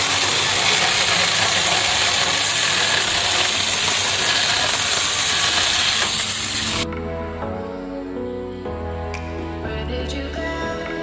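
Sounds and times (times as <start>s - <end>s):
chainsaw cutting log: 0.0s - 6.8s
soft music: 6.8s - 11.0s.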